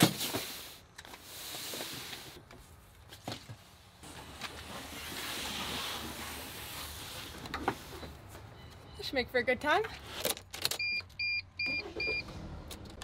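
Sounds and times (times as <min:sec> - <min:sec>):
rustling and scraping: 0:00.0 - 0:08.5.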